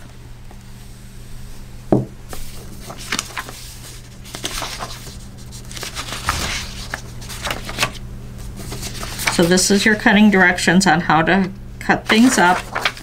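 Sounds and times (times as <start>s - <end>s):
steady low hum: 0.0s - 13.0s
soft paper rustling: 2.3s - 10.0s, 12.0s - 13.0s.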